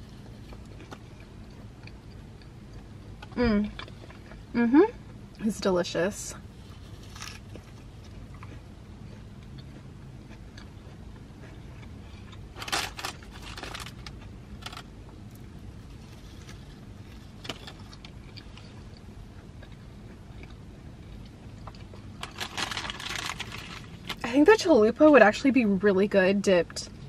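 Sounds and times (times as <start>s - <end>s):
food wrapper crackling rustles: 6.8s - 8.1s, 12.5s - 14.9s, 21.9s - 24.2s.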